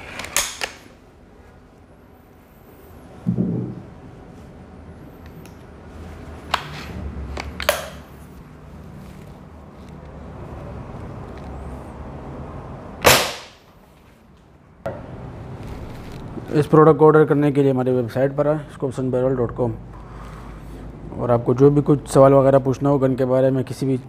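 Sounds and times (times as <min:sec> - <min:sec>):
air rifle shot crack: 0:13.0 - 0:13.6.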